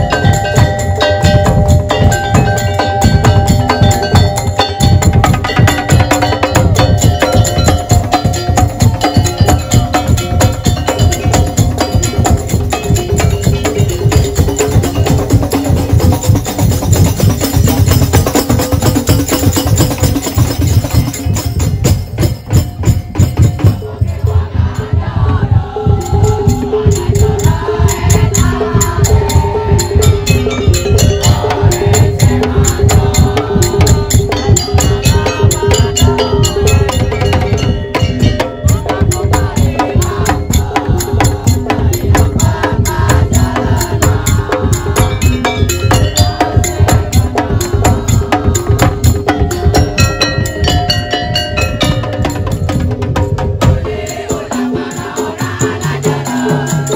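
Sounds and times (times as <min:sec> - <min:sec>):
fast drumming: 0:00.0 - 0:56.9.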